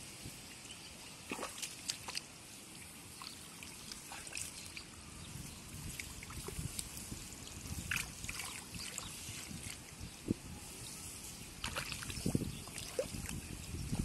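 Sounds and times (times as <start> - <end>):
muddy water splashing: 1.2 - 5.0, 5.8 - 9.9, 11.5 - 14.0
wet clicks and dribbles: 1.3 - 2.3.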